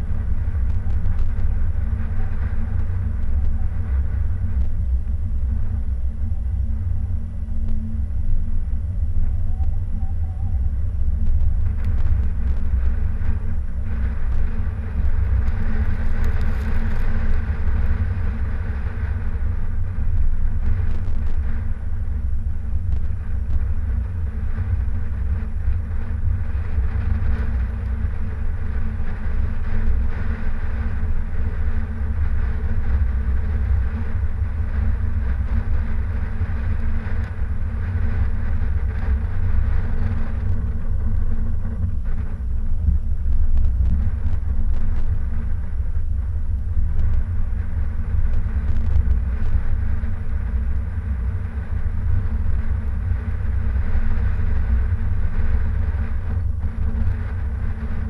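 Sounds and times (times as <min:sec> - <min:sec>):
car driving on snowy road: 0:10.6 - 0:22.2.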